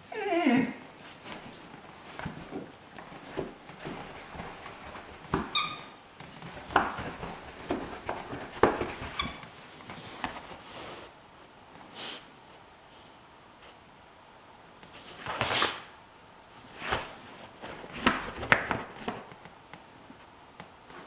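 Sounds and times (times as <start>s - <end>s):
puppy high squeaks: 5.5s - 6.0s, 9.1s - 9.4s.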